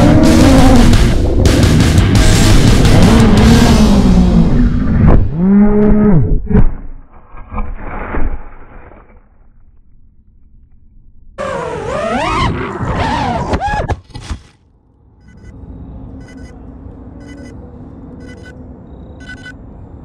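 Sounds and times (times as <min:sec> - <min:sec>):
drone crashing into branches: 0:06.5 - 0:09.6.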